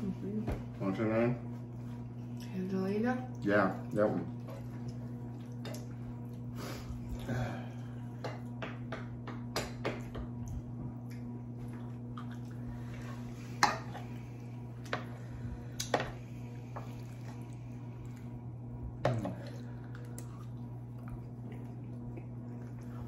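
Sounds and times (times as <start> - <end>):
steady low hum: 0.0 - 23.0
wet eating sounds: 3.2 - 8.6, 10.2 - 23.0.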